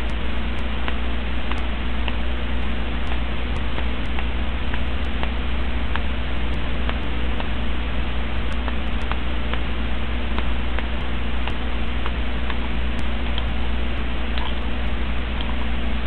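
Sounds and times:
faint clicks: 0:00.0 - 0:07.6
low electrical hum: 0:00.0 - 0:16.0
microphone hiss: 0:00.0 - 0:16.0.

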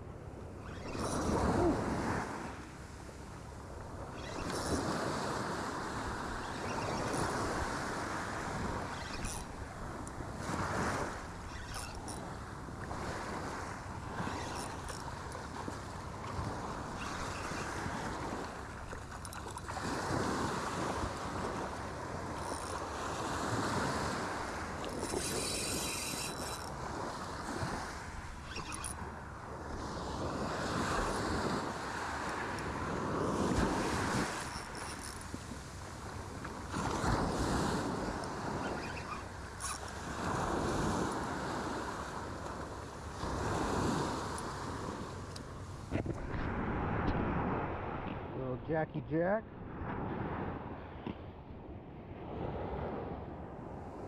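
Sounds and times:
surf washing onto beach: 0:39.9 - 0:50.8.

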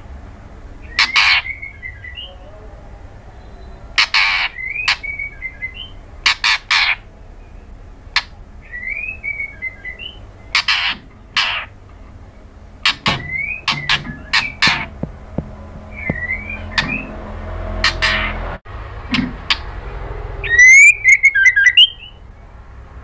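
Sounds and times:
bird harsh rasping calls: 0:00.8 - 0:02.3, 0:03.5 - 0:07.1, 0:08.2 - 0:11.8, 0:12.8 - 0:18.5, 0:20.4 - 0:22.2
bird rising whistled notes: 0:20.4 - 0:22.2.

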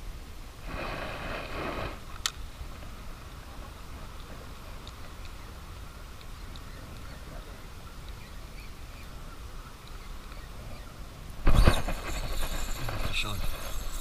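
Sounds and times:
faint outdoor background on water: 0:00.0 - 0:14.0
faint ticks: 0:03.6 - 0:08.7.

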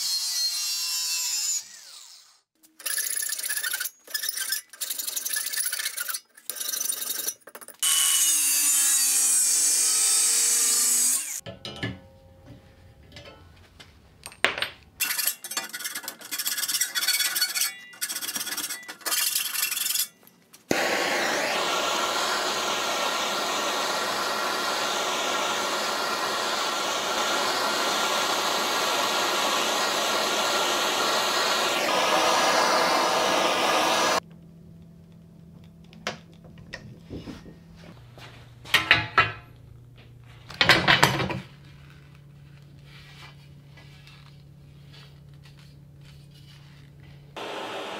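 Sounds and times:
hand tool rasping on metal: 0:02.8 - 0:07.8, 0:15.0 - 0:20.2
gas torch hissing: 0:20.7 - 0:34.2.

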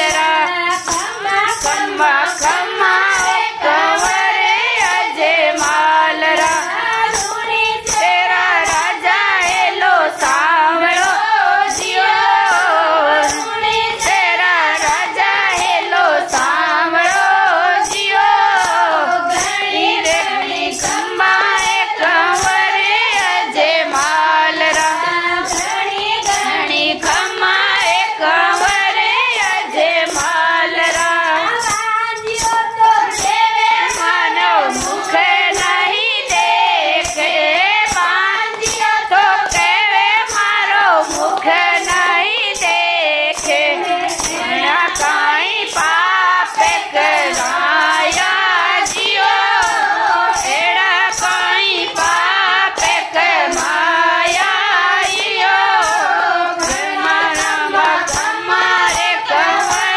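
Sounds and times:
hand-clapping: 0:00.0 - 0:59.9
women singing folk song: 0:00.0 - 0:59.9.

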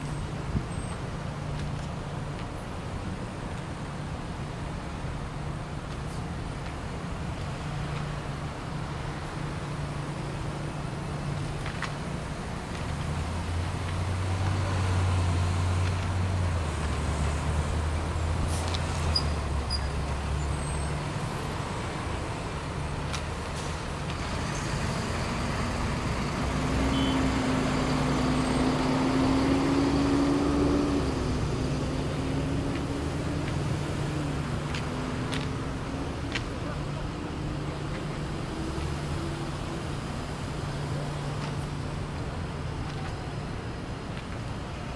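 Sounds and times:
car engines running slowly: 0:00.0 - 0:44.9
truck engine passing by: 0:13.0 - 0:40.5.

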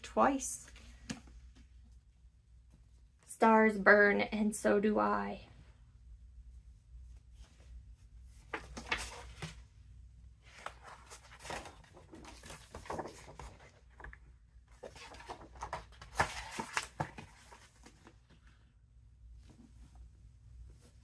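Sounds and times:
paper book jacket rustling: 0:08.2 - 0:09.6, 0:10.4 - 0:18.2.

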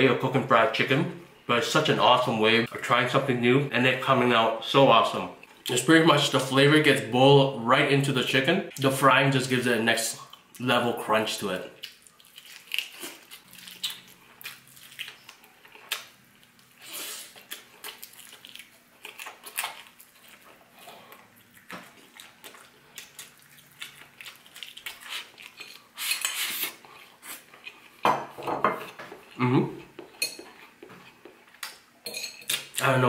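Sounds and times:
chewing crisp fried chicken: 0:11.8 - 0:28.0.

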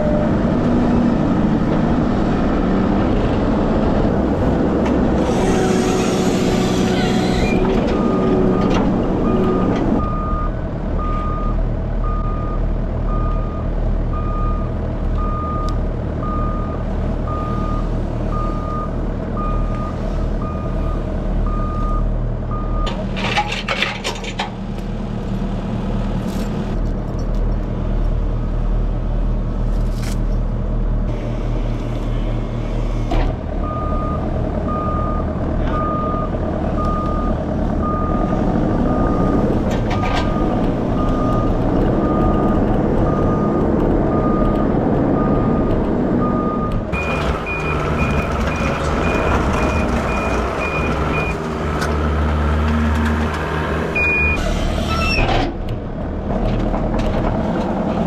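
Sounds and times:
diesel engine running: 0:00.0 - 0:58.0
reversing alarm beeping: 0:07.5 - 0:22.9, 0:33.6 - 0:39.4, 0:43.1 - 0:51.4, 0:54.0 - 0:54.4.

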